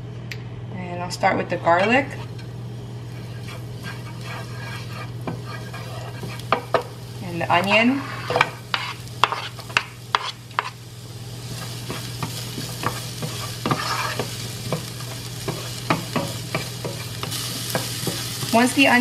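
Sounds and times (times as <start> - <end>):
onion sizzling in oil: 1.8 - 19.0
wooden spoon scraping pan: 3.1 - 6.8, 7.7 - 10.8, 11.6 - 18.6.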